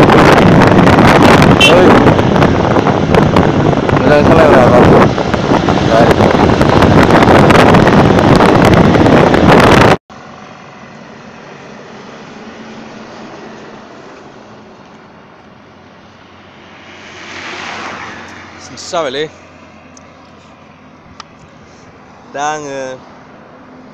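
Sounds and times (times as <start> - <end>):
wind rush on microphone: 0.0 - 10.0
vehicle noise: 0.0 - 23.9.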